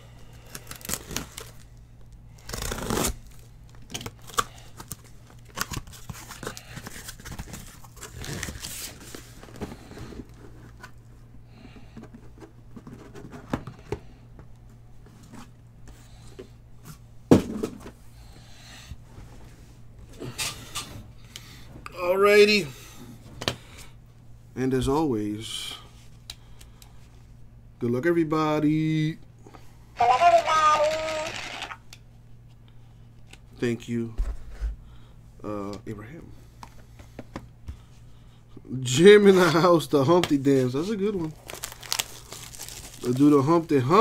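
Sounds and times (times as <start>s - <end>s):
cardboard and tape tearing: 0.4s - 1.6s, 2.3s - 9.3s, 41.3s - 43.3s
boxes rustling and scraping: 4.1s - 14.1s
box thump on table: 17.3s - 17.8s.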